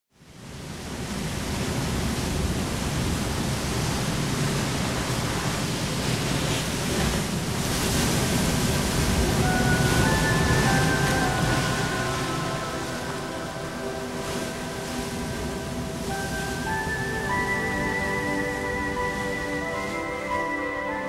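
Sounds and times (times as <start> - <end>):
wind: 0.1 - 21.0
sea waves: 0.2 - 21.0
held music notes: 9.3 - 21.0.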